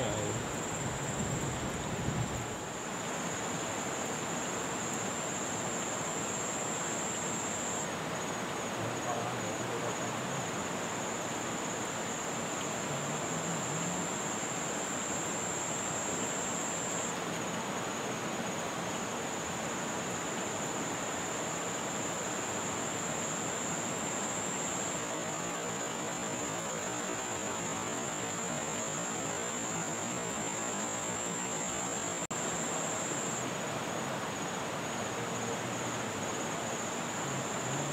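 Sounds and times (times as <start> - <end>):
river rushing: 9.9 - 37.9.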